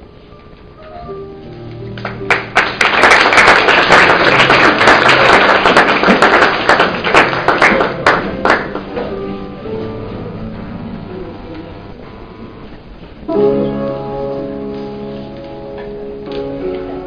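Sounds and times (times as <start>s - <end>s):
quiet background music: 0.0s - 17.0s
audience applauding: 2.0s - 9.1s.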